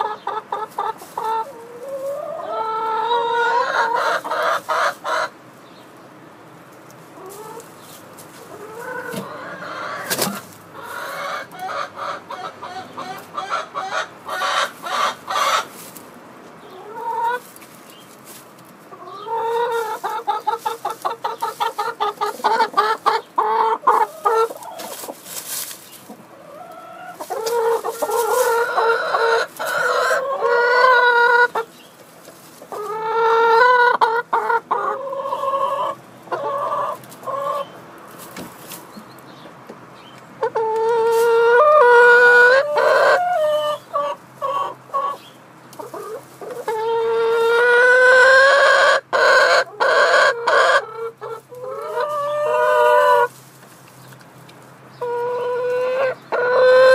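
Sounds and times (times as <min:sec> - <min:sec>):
hens clucking and cackling: 0:00.0 - 0:56.9.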